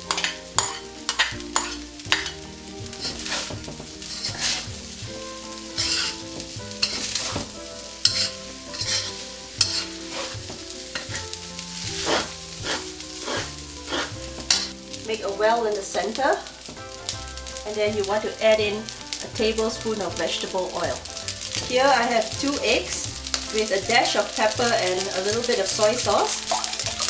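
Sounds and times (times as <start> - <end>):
metal spatula scraping a wok: 0.0 - 14.9
light sizzle: 0.0 - 27.0.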